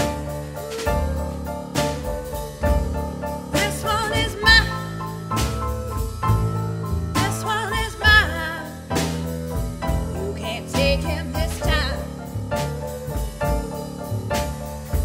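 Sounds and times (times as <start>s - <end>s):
drum strokes: 0.0s - 15.0s
grand piano chords: 0.0s - 15.0s
upright double bass: 0.0s - 15.0s
woman singing: 3.6s - 5.1s, 7.2s - 9.2s, 10.0s - 12.2s.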